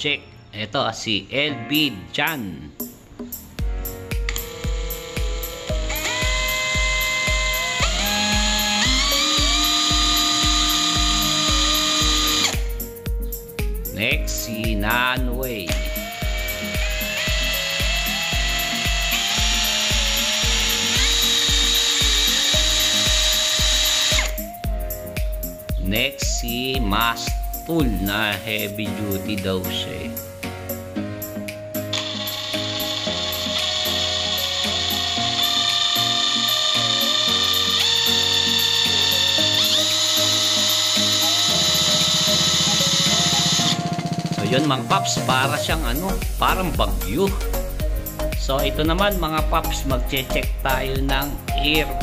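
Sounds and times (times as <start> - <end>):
music with steady beat: 2.8 - 52.0
impact wrench motor whine: 4.2 - 12.8, 15.7 - 24.6, 31.9 - 44.4.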